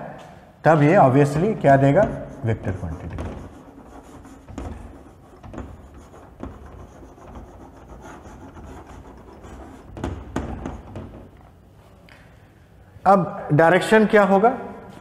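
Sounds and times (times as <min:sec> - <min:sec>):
chalk scratching on chalkboard: 0:01.4 - 0:11.4
chalk taps: 0:01.4 - 0:11.5.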